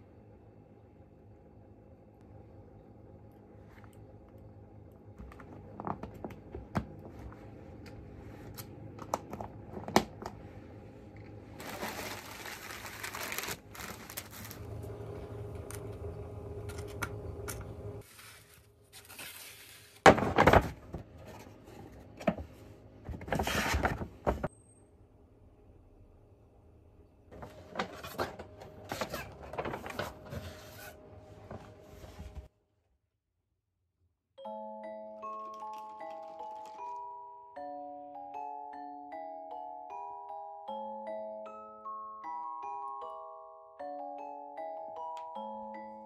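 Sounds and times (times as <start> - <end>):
paper rustling: 11.6 - 14.8, 18.0 - 21.6, 23.1 - 24.5.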